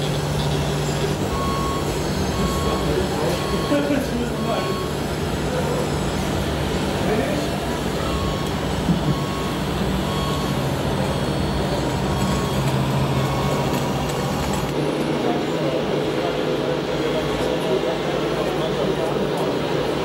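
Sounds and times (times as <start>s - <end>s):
model vehicles engine drone: 0.0s - 20.0s
voices chattering: 0.0s - 20.0s
faint short beeps: 1.3s - 5.0s.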